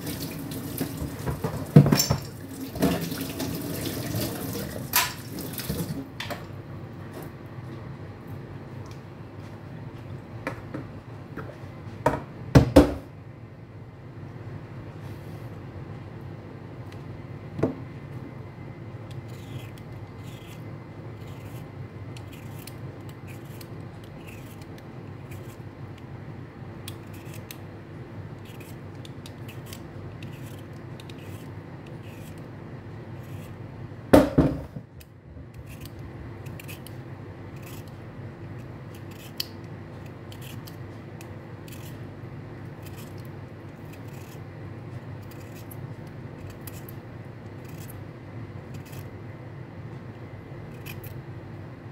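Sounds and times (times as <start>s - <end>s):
steady low hum: 5.4s - 51.9s
peeler scraping beetroot skin: 19.1s - 25.7s, 26.8s - 27.6s, 28.4s - 32.5s, 33.1s - 33.6s, 35.5s - 38.0s, 38.6s - 44.5s, 45.2s - 48.0s, 48.6s - 49.1s, 50.7s - 51.2s
loud knock: 34.2s - 34.8s.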